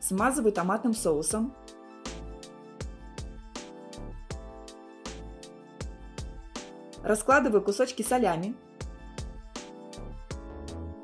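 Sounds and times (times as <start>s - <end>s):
instrumental background music: 0.0s - 11.0s.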